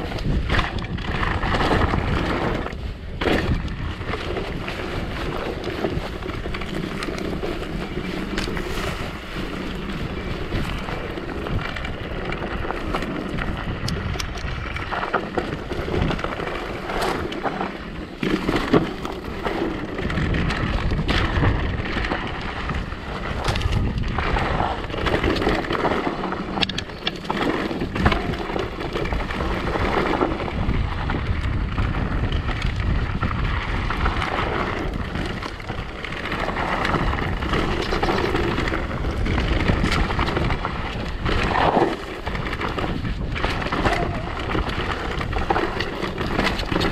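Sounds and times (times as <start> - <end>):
bike knocking and rattling: 0.0 - 46.9
tyre rumble: 0.0 - 46.9
wind buffeting microphone: 0.0 - 46.9.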